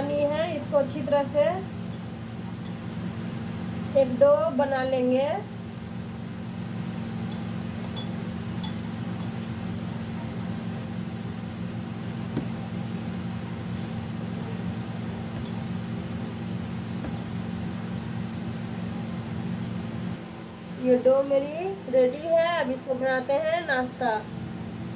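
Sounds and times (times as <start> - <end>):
low mechanical hum: 0.0 - 24.9
glass bangles clinking: 7.3 - 9.4.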